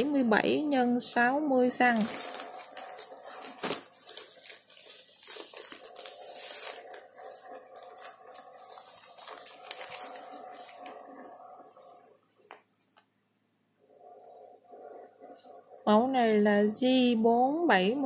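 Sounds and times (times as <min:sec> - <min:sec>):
plastic bags rustling and crinkling: 0:01.7 - 0:12.1.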